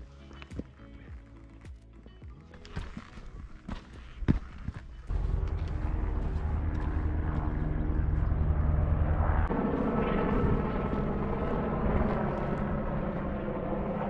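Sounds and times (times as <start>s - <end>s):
engine drone: 4.3s - 14.0s.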